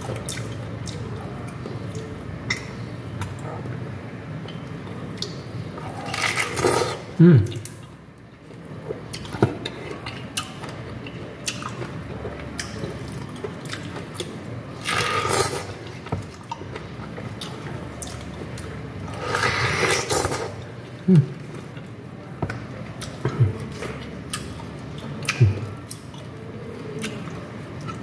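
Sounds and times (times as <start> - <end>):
wet chewing and slurping: 8.6 - 22.0, 22.8 - 28.0.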